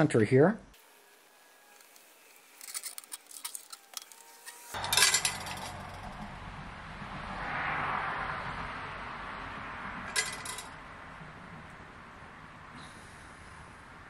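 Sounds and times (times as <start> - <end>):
metal tools scratching on steel: 1.7 - 6.1, 10.1 - 10.7
metal clinks: 4.8 - 6.2, 10.1 - 10.7.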